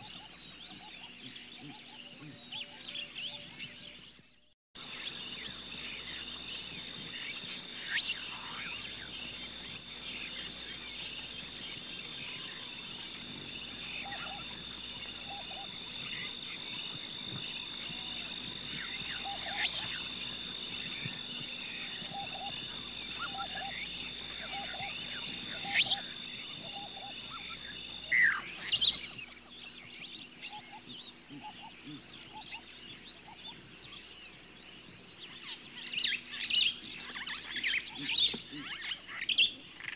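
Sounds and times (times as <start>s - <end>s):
high-pitched animal chorus: 4.8s - 28.9s.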